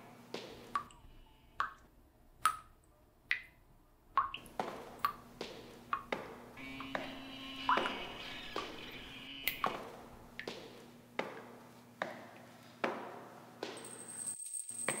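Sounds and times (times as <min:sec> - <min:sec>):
low steady hum: 0:00.0 - 0:14.3
echoing footsteps on hard floor: 0:00.3 - 0:00.8, 0:04.5 - 0:07.1, 0:09.6 - 0:14.0
high thin tone: 0:06.6 - 0:09.8.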